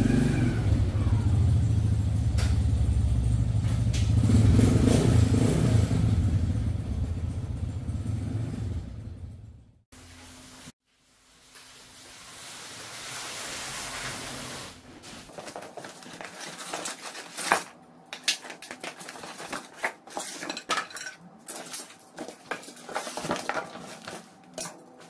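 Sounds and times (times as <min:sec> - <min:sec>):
rustling cardboard and styrofoam: 0:11.4 - 0:25.0
cardboard box being opened: 0:15.3 - 0:20.5, 0:21.5 - 0:24.3
knocks and clinks of parts: 0:15.3 - 0:25.0.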